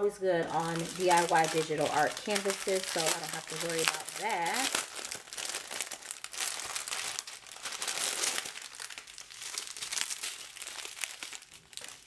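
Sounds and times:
plastic packets crinkling: 0.0s - 12.0s
beads rattling: 0.5s - 9.0s.

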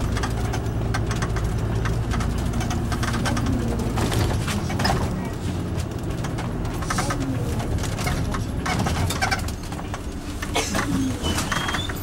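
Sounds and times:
fittings clicking and rattling: 0.0s - 5.1s
diesel engine rumble: 0.0s - 12.0s
faint high brake squeal: 11.1s - 12.0s.

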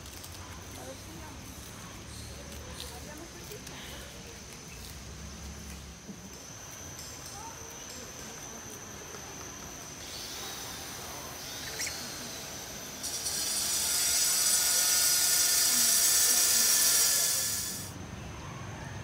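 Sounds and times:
cicadas buzzing: 0.0s - 18.0s.

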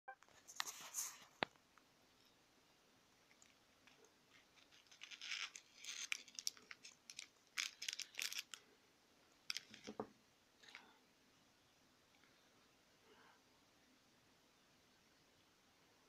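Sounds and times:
plastic bag crinkling: 3.4s - 8.6s, 9.5s - 10.0s.

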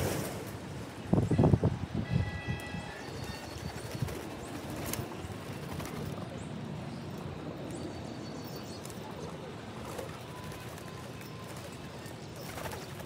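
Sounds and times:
pigeons cooing and fluttering: 3.4s - 6.4s, 9.2s - 13.0s.

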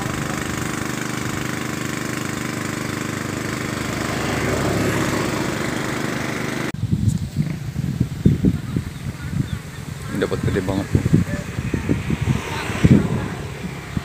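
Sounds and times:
engine running: 0.0s - 14.0s.

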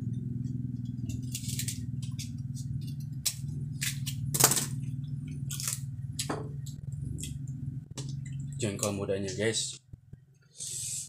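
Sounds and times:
steady low hum: 0.0s - 11.0s
food crunching: 3.2s - 7.4s.

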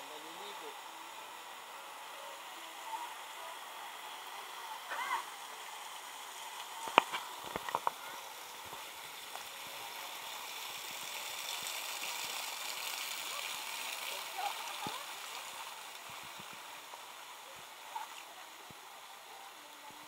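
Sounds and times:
faint voices: 0.0s - 10.2s, 12.2s - 20.0s
waterfall rushing: 0.0s - 20.0s.

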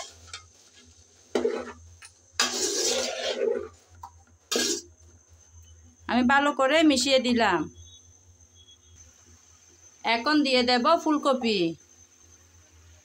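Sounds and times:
metal spatula scraping pot: 0.0s - 3.8s, 4.5s - 4.9s.

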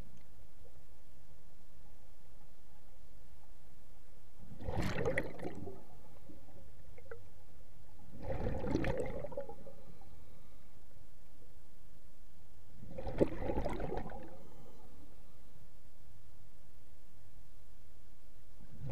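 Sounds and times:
underwater regulator bubbling: 4.5s - 7.3s, 8.1s - 9.8s, 12.8s - 14.4s.

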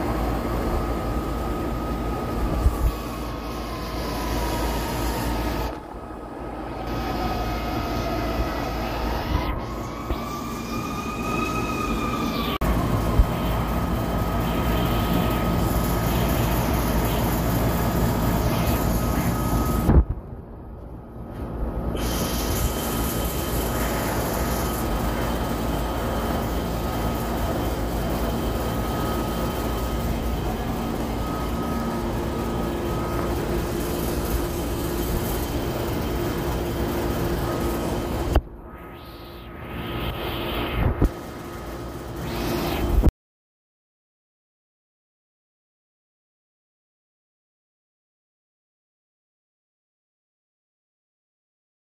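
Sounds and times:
low electrical compressor hum: 0.0s - 43.0s
fan whooshing: 21.8s - 43.1s.

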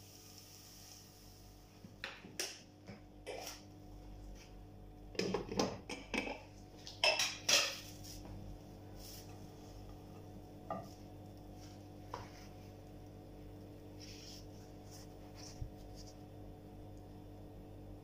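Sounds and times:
low steady hum: 0.0s - 18.0s
utensils clattering on a frying pan: 5.9s - 7.9s.

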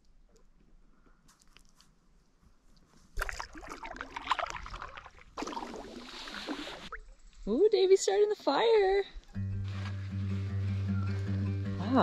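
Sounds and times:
paddle splashing water: 3.1s - 7.1s.

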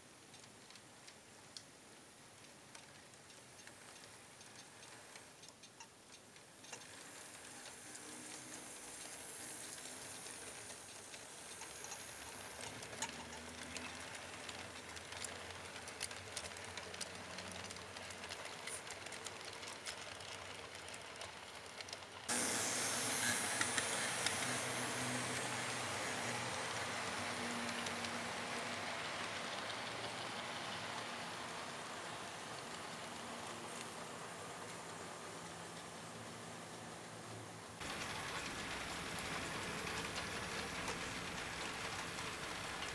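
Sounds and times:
model train wheels clicking: 2.3s - 37.2s, 37.8s - 42.9s
rolling hiss: 6.8s - 14.6s, 22.3s - 36.6s, 37.8s - 42.9s.

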